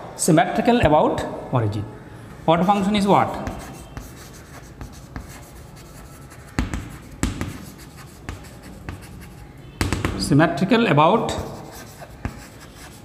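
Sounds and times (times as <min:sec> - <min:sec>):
chalk scratching on chalkboard: 0:03.3 - 0:09.6, 0:11.3 - 0:13.0
chalk knocking on board: 0:06.5 - 0:09.1, 0:11.3 - 0:12.6.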